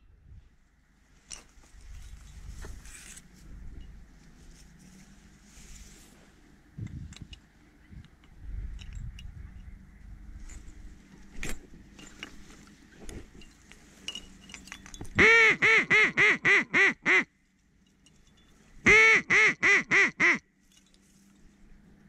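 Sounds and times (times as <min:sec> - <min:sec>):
faint clicks and rustles: 0:01.0 - 0:15.2
duck quacking: 0:18.9 - 0:20.4.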